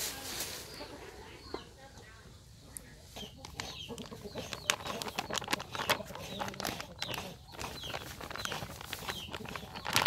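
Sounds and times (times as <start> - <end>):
faint birds calling: 0.5 - 10.0
plastic bag crinkling: 3.5 - 10.0.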